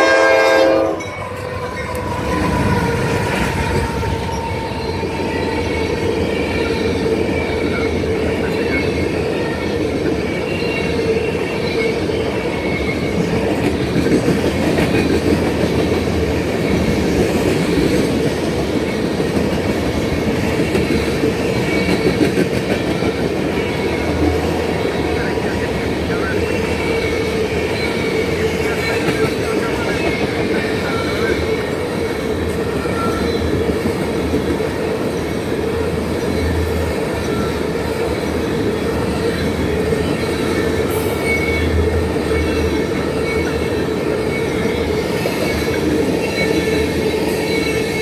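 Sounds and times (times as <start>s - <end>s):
freight train rolling past: 0.0s - 48.0s
steel wheels clattering on rails: 12.7s - 48.0s.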